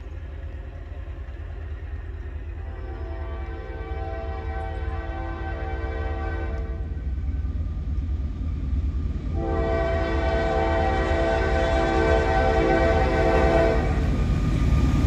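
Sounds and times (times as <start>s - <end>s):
locomotive air horn blasts: 2.6s - 6.9s, 9.4s - 14.0s.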